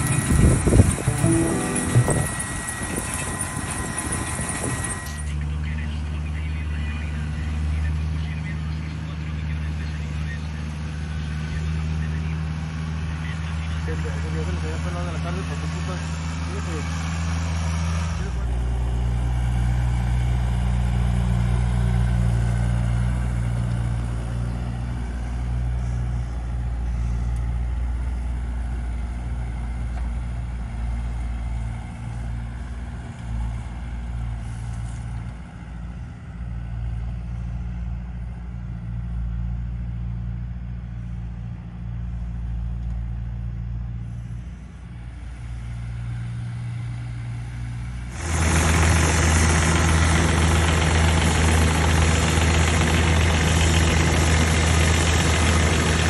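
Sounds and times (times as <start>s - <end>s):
mini excavator engine running: 0.0s - 56.0s
tractor engine running: 0.0s - 56.0s.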